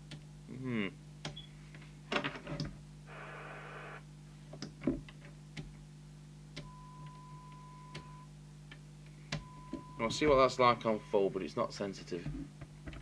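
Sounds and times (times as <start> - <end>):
low steady hum: 0.0 - 13.0
radio receiver hiss: 3.1 - 4.0
steady test tone: 3.1 - 4.0.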